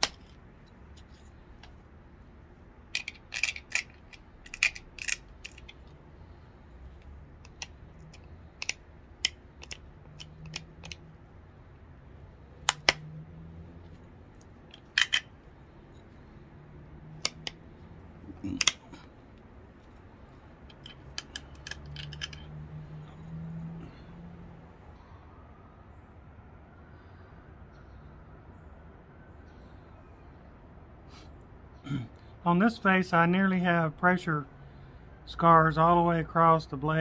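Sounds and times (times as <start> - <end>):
flint flaking clicks and snaps: 2.9 - 6.0, 6.9 - 11.0, 12.7 - 13.0, 17.2 - 17.6, 20.7 - 22.5.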